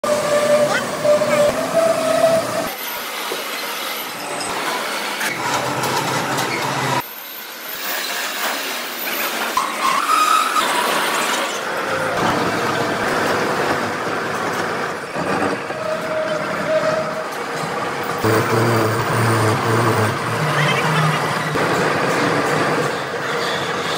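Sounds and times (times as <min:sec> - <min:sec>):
heavy machinery noise: 0:10.7 - 0:23.9
lathe cutting steel: 0:15.4 - 0:23.1.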